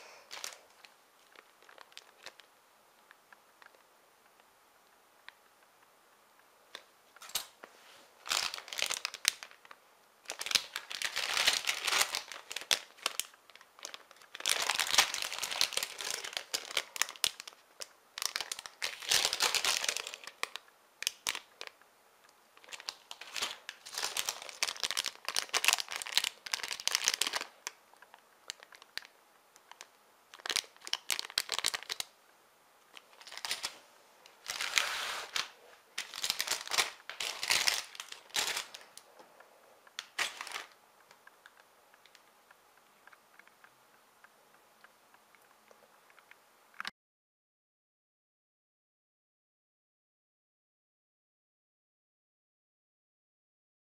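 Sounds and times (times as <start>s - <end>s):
plastic bags crinkling: 0.0s - 2.5s, 8.2s - 21.8s, 22.6s - 32.1s, 32.9s - 39.2s, 40.0s - 42.2s.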